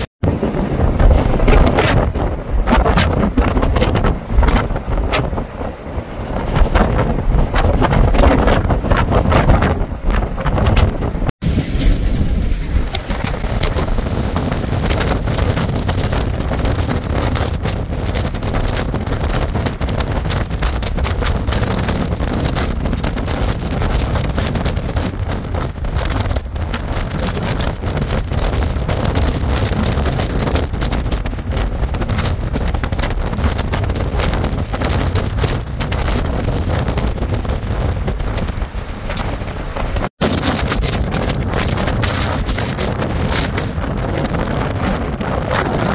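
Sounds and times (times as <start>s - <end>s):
strong wind buffeting microphone: 0.0s - 45.9s
rain: 11.4s - 45.9s.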